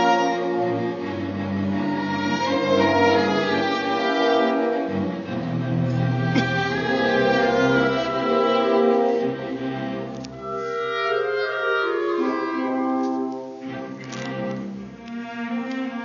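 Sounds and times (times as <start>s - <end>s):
orchestra playing classical music: 0.0s - 16.0s.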